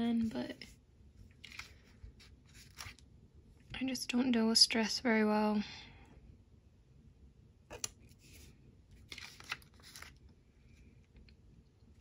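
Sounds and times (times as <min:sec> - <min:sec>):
paper stickers crinkling: 0:01.4 - 0:03.0, 0:09.0 - 0:10.3.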